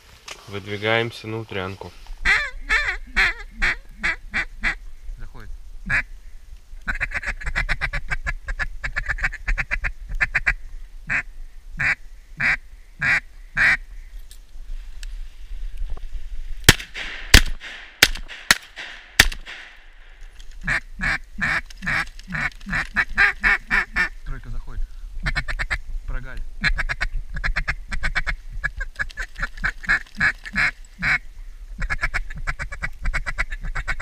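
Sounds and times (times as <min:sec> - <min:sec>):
duck call quacking: 0:02.2 - 0:04.8, 0:11.8 - 0:13.8, 0:29.9 - 0:31.2
loud shotgun shots: 0:16.7 - 0:20.2.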